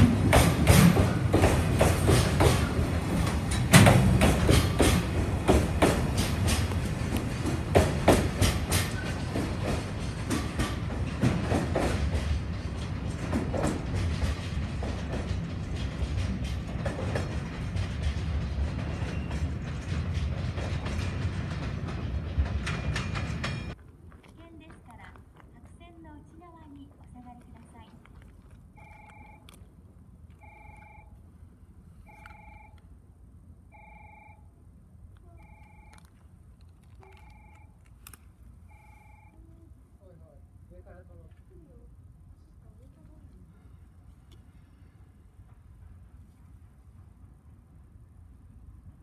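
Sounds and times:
clicks over rail joints: 0.0 - 30.8
train wheels rumbling: 0.0 - 34.4
low background noise: 23.7 - 49.0
electronic trilling warning chime: 38.7 - 39.4.

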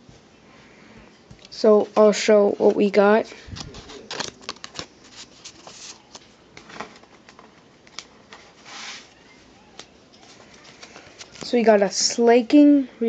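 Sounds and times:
card sleeves rustling and clicking: 3.5 - 9.1, 9.7 - 11.6
card sliding: 8.0 - 9.2.

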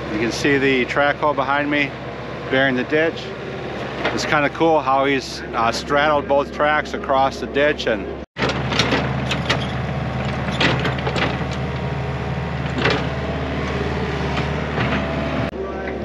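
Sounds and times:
excavator diesel engine running: 0.0 - 16.0
machine clanks and knocks: 3.8 - 4.4, 8.4 - 15.5.

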